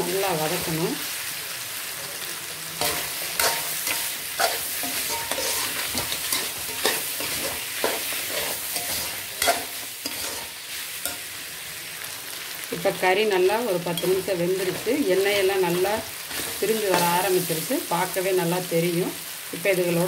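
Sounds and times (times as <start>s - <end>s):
meat sizzling in oil: 0.0s - 20.0s
ladle scraping pan: 2.8s - 10.6s.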